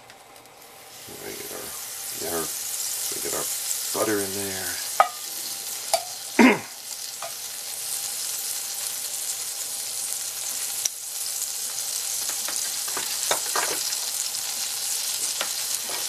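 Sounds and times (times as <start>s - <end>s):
butter sizzling in a skillet: 0.0s - 16.0s
knife scraping a pan: 15.2s - 16.0s.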